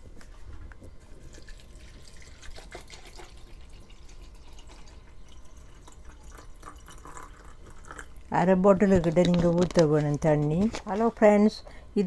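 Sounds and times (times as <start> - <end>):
water trickling into plastic cup: 1.2 - 8.3.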